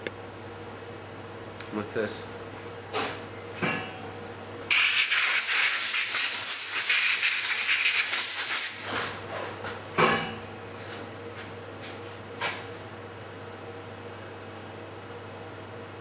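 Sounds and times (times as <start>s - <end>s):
compressed air hissing: 4.7s - 8.8s.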